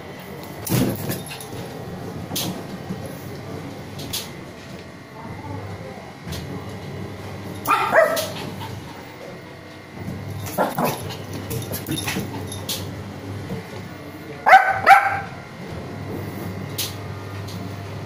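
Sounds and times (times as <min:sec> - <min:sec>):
small dog yapping: 0:07.6 - 0:08.4, 0:14.5 - 0:15.4.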